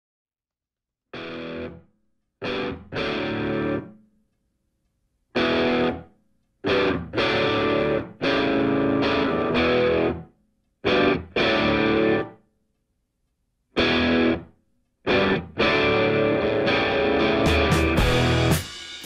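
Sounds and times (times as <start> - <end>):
distorted electric guitar chords: 1.2 - 1.8, 2.4 - 4.0, 5.4 - 12.4, 13.8 - 14.5, 15.1 - 18.7.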